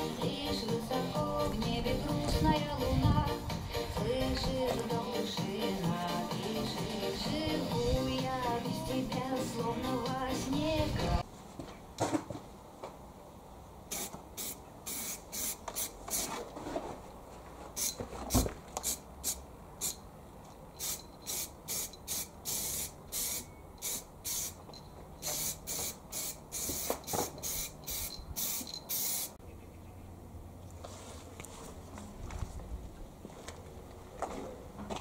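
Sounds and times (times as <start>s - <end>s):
spray-paint can hissing: 13.9s - 16.3s, 18.8s - 20.0s, 20.8s - 24.6s, 25.2s - 29.4s.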